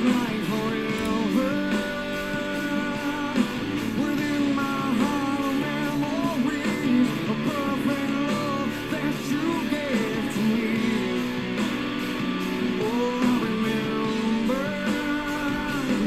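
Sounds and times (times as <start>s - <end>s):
person singing: 0.0s - 16.0s
rock music with guitar: 0.0s - 16.0s.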